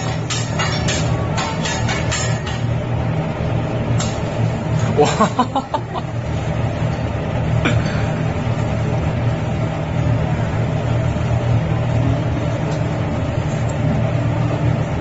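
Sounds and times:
spatula scraping griddle: 0.0 - 2.7
low mechanical hum: 0.0 - 15.0.

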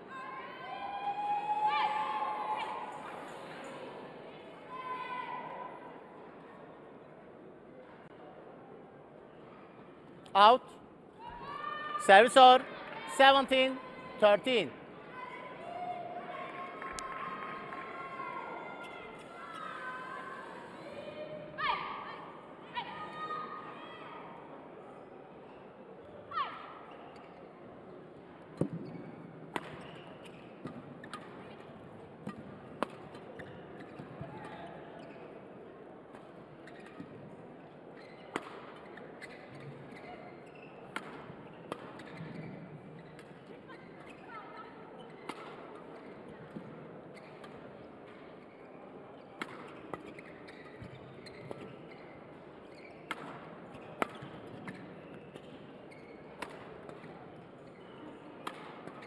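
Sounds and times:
rackets hitting shuttlecock: 28.6 - 34.2, 38.3 - 39.7, 40.9 - 42.5, 45.2 - 48.2, 49.4 - 51.8, 53.0 - 55.6, 56.4 - 57.2, 58.4 - 59.0
shoes squeaking on court: 33.3 - 35.4, 36.6 - 37.2, 37.9 - 46.5, 47.1 - 47.5, 48.1 - 53.2, 53.8 - 56.4
racket striking shuttlecock: 54.0 - 54.8, 56.4 - 57.1, 58.4 - 59.0.

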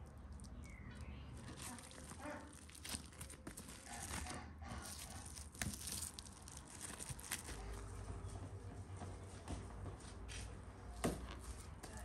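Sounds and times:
cling film crinkling: 0.0 - 7.9.

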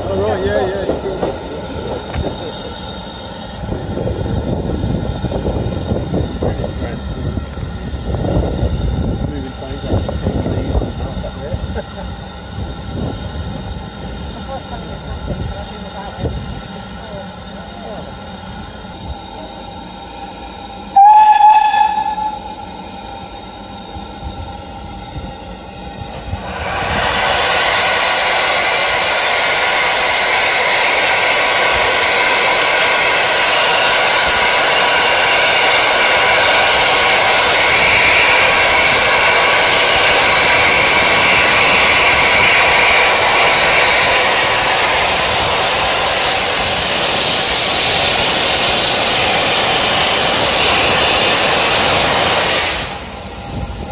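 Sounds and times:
loud hiss of steam: 0.0 - 53.9
steam locomotive whistle: 20.9 - 23.3.

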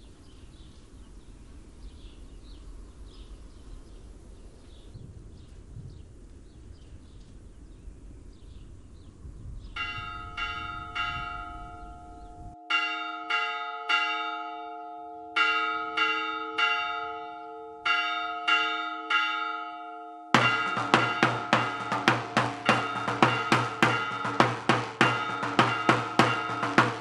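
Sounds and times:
rushing outdoor noise: 0.0 - 12.6, 20.4 - 27.0
church bell ringing: 9.8 - 27.0.

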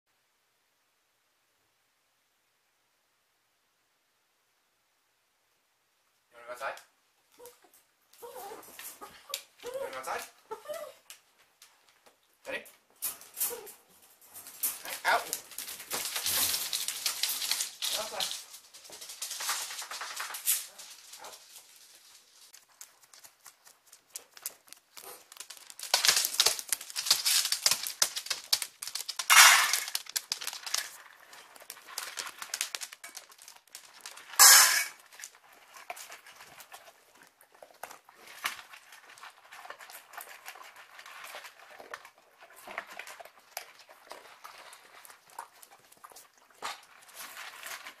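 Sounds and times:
dogs' claws clicking: 22.6 - 36.9.

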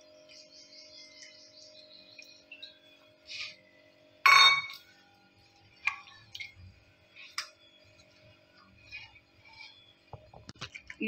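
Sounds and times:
faint steady hum: 0.0 - 11.0
steel bowl clinking on counter: 4.2 - 4.9
spatula scraping in pan: 4.7 - 10.6.

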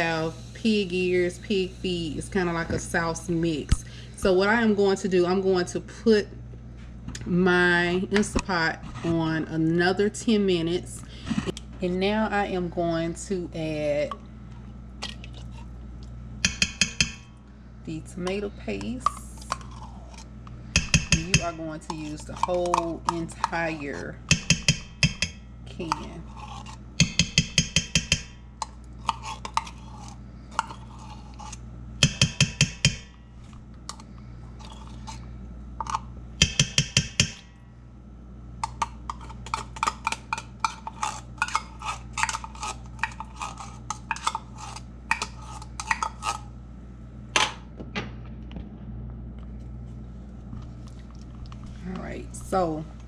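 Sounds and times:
metal spoon tapping metal pot: 16.4 - 17.3, 20.8 - 23.6, 24.3 - 26.1, 27.0 - 28.7, 32.0 - 33.2, 35.8 - 37.5.

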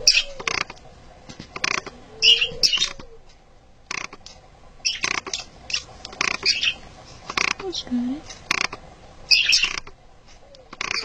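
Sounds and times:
budgerigar squeaking: 0.0 - 0.8, 1.6 - 3.1, 4.8 - 10.0, 10.6 - 11.0.

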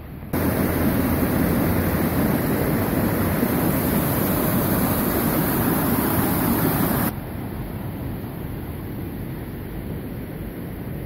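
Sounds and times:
river rushing over boulders: 0.4 - 7.2.

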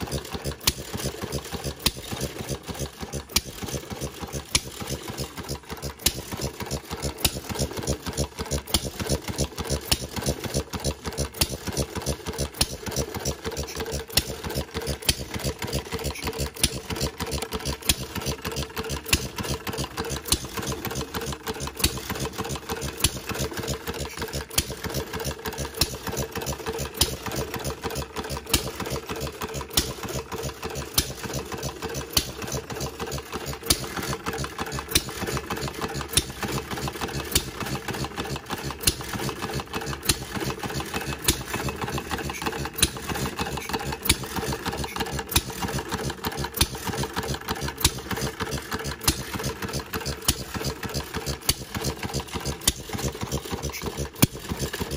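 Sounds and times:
gas engine clattering: 0.0 - 54.9.

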